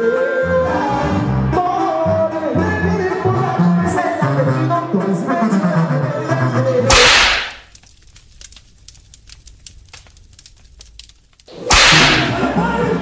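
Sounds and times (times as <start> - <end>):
music: 0.0 - 6.9, 11.9 - 13.0
faint scattered crackles: 6.9 - 12.4
loud whoosh-hit: 11.7 - 12.4.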